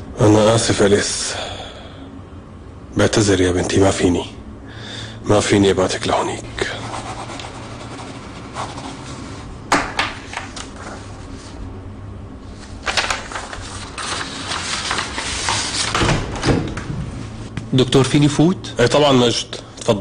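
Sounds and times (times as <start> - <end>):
steady low hum: 0.0 - 20.0
papers shuffling on a desk: 10.1 - 11.6, 12.5 - 17.5.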